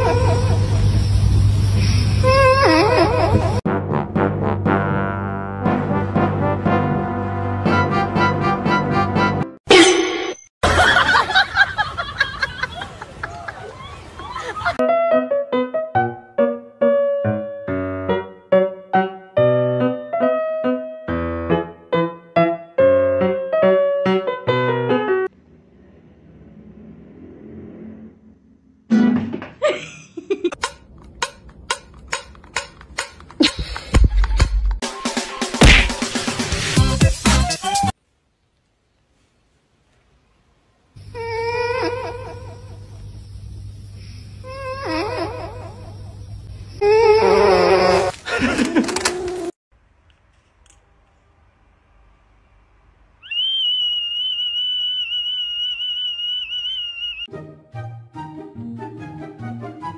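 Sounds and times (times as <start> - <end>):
long high whistle note: 53.2 - 57.3.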